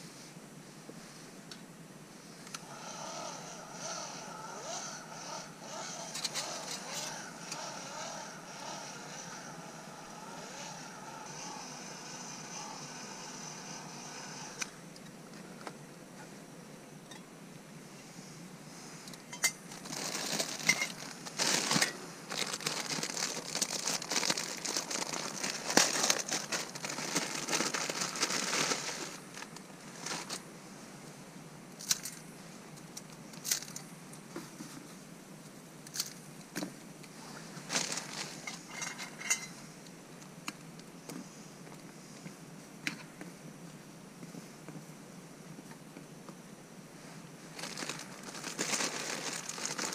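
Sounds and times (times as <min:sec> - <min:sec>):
plastic packet crinkling and tearing: 0:19.7 - 0:30.4, 0:37.7 - 0:38.5, 0:47.5 - 0:49.9.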